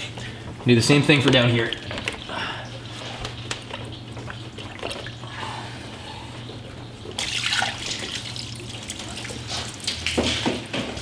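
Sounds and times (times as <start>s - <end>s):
coolant pouring and splattering: 1.3s - 5.4s, 7.1s - 10.6s.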